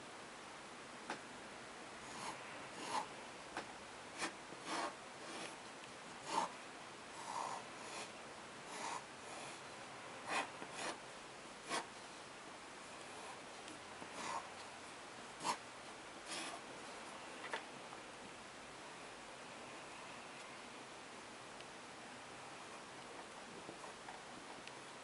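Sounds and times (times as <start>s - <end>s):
faint steady hiss: 0.0s - 25.0s
pen scratching on paper: 2.1s - 3.1s, 4.2s - 5.6s, 6.2s - 6.6s, 7.2s - 8.1s, 8.7s - 9.6s, 10.2s - 11.0s, 11.6s - 11.9s, 15.4s - 15.6s, 16.3s - 16.6s.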